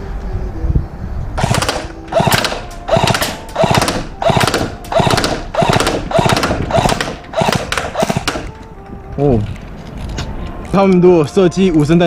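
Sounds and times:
airsoft gun firing bursts: 0:01.4 - 0:08.6.

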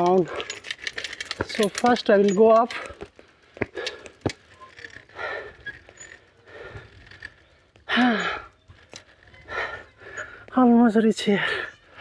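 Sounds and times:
person breathing hard: 0:02.8 - 0:04.4, 0:05.1 - 0:10.6.

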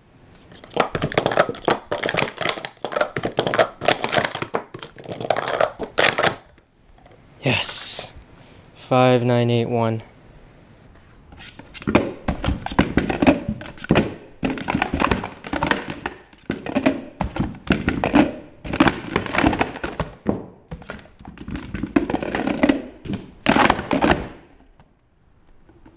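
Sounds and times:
plastic cups clattering: 0:00.4 - 0:07.2, 0:11.9 - 0:24.5.

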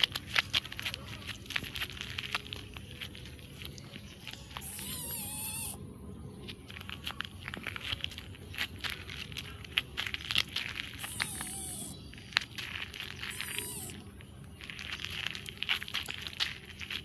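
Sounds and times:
footsteps on gravel: 0:00.0 - 0:17.0
kitten meowing: 0:04.2 - 0:05.8, 0:11.0 - 0:12.0, 0:13.2 - 0:14.0.

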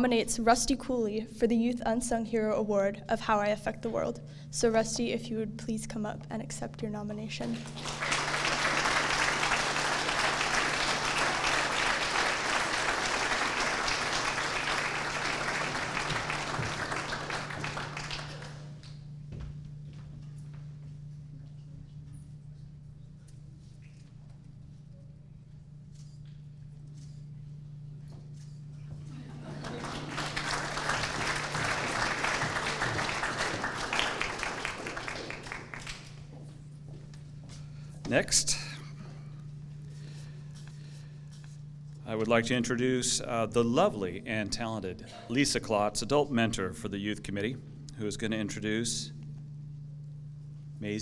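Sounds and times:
steady low hum: 0:00.0 - 0:51.0
audience applauding: 0:07.6 - 0:18.8, 0:29.1 - 0:36.2.

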